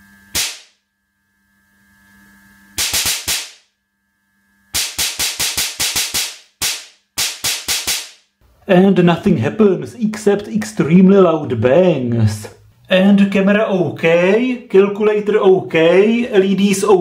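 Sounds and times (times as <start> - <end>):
spark discharge bangs: 0.3 - 0.8, 2.8 - 3.7, 4.7 - 8.2
faint steady hum: 8.3 - 17.0.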